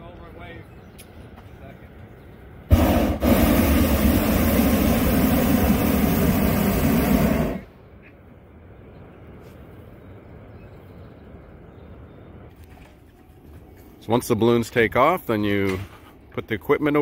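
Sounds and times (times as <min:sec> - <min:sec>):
propane burner roaring: 0:02.6 - 0:07.9
faint background noise: 0:07.5 - 0:17.0.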